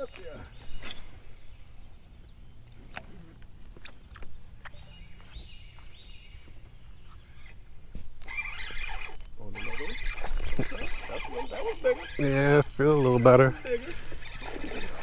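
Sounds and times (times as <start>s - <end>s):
outdoor background noise: 0.0s - 15.0s
fishing reel cranking: 8.2s - 15.0s.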